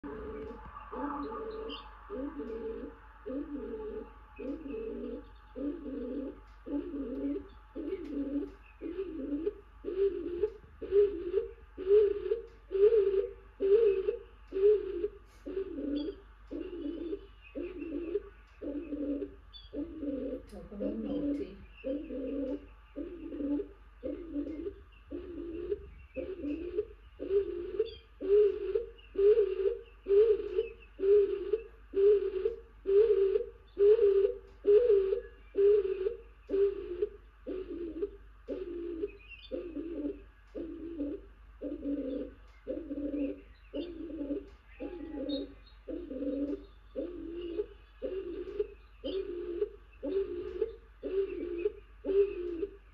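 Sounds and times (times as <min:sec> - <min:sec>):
dove cooing: 0:00.0 - 0:52.9.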